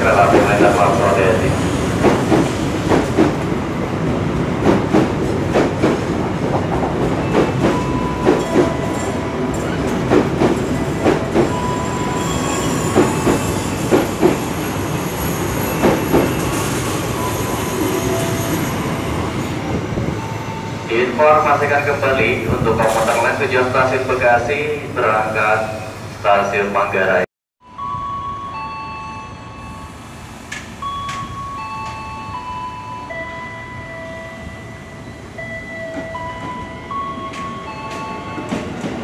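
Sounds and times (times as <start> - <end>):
high wheel squeals: 11.5 - 19.5
train wheels clacking over rail joints: 12.9 - 14.5, 15.7 - 16.5.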